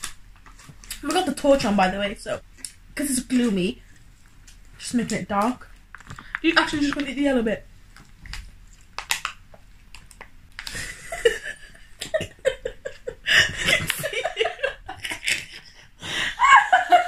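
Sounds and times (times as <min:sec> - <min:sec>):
plastic wrapper crinkling: 0:00.0 - 0:01.4, 0:02.5 - 0:10.9
women laughing: 0:10.8 - 0:17.0.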